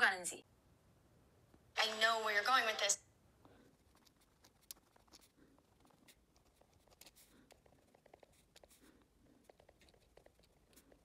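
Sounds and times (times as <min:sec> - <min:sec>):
pen scratching on paper: 0:03.7 - 0:11.0.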